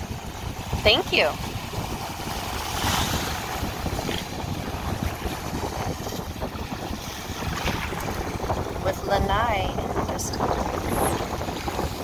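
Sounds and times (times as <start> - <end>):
small waves washing over sand: 0.0 - 12.0
wind buffeting microphone: 0.0 - 12.0.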